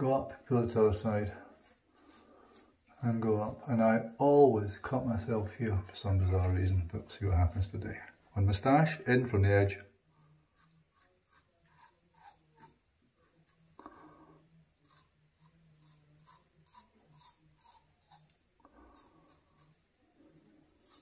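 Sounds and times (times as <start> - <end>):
safety razor scraping stubble: 10.6 - 12.8, 14.8 - 18.4, 20.8 - 21.0.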